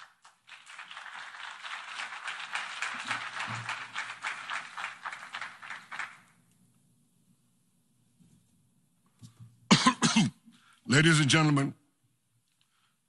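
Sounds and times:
audience applause: 0:00.0 - 0:06.3.

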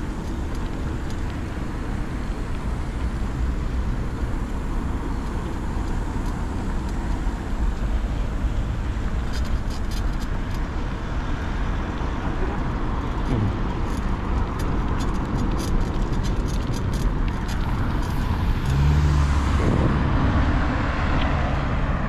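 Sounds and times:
road traffic rumble: 0:00.0 - 0:22.0
vehicle engine hum passing: 0:00.0 - 0:22.0
car passing by: 0:17.6 - 0:22.0.

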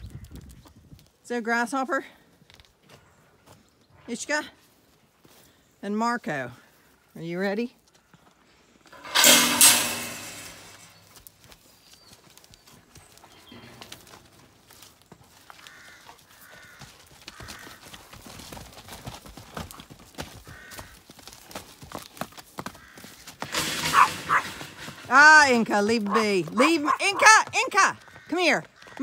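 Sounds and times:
hooves clopping on tarmac: 0:11.2 - 0:29.0.

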